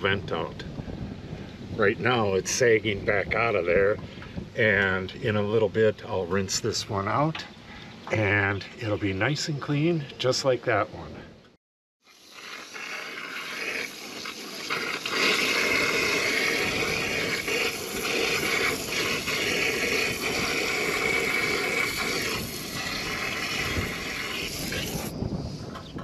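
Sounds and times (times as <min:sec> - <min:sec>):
hose spraying water on siding: 0:12.0 - 0:25.1.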